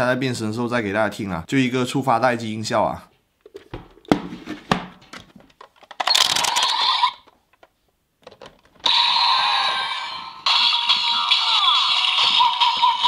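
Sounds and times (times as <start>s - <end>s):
plastic toy clicks: 5.6s - 8.7s
electronic toy standby sound: 6.0s - 7.3s, 8.8s - 13.0s.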